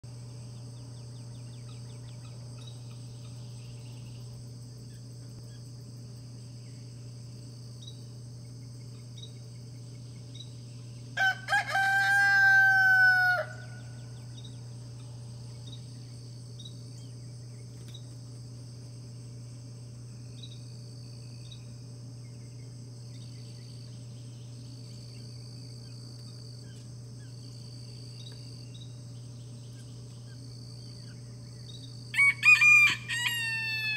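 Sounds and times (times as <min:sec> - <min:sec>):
high insect drone: 0:00.1 - 0:33.9
rooster crowing: 0:11.2 - 0:14.2, 0:32.1 - 0:33.9.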